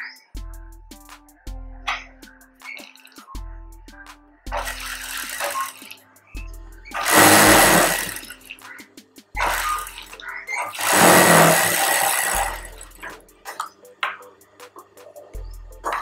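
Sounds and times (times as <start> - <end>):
sewing machine stitching: 4.5 - 5.9, 6.9 - 8.5, 9.4 - 13.1
motor humming low: 6.4 - 8.4, 9.4 - 13.4.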